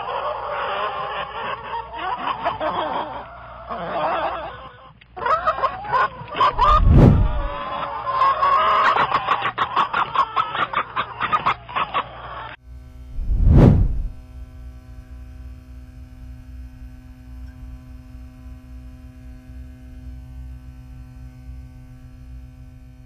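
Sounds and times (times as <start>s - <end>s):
deep boom: 6.6s - 7.6s
chickens clucking and squawking: 7.5s - 12.5s.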